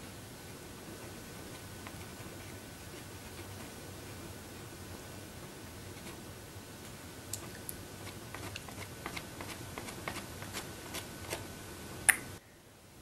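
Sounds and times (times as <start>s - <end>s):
pastel stick scratching on paper: 8.0s - 11.5s.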